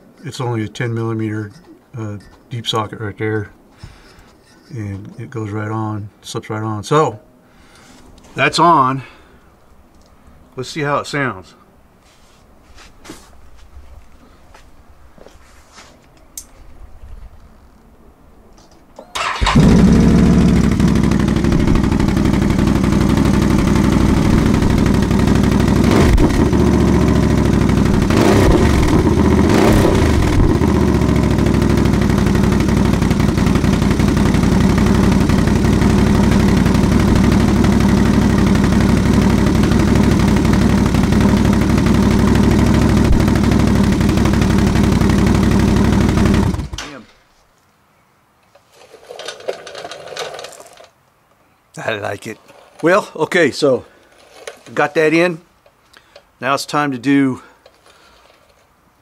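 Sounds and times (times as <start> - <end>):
engine idling: 19.2 - 46.8
engine revving: 19.2 - 46.8.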